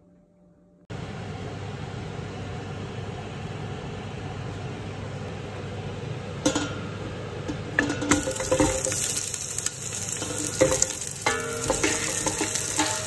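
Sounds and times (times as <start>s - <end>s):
pot cooking hiss and hum: 0.9s - 13.0s
stirring or sizzling burst: 8.1s - 13.0s.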